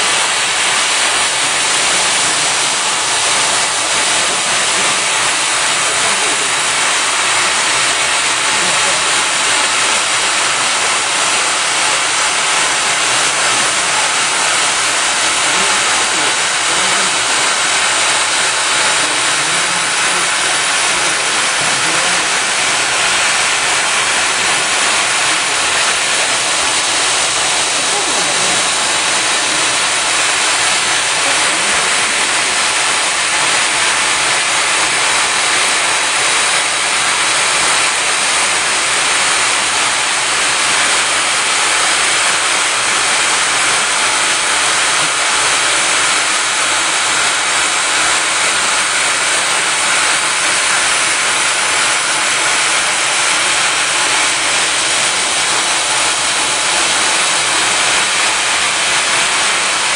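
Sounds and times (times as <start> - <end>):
welding machine steady hiss: 0.0 - 59.9.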